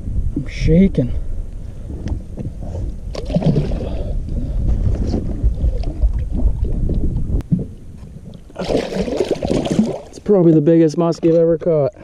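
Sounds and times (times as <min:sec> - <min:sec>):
wind buffeting microphone: 0:00.0 - 0:10.1
water sloshing and splashing: 0:03.0 - 0:10.4.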